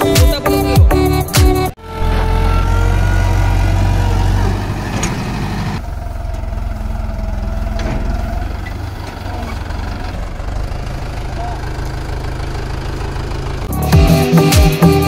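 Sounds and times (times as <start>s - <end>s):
tractor diesel engine under load: 0.0s - 15.0s
tyres churning through soil: 2.7s - 13.7s.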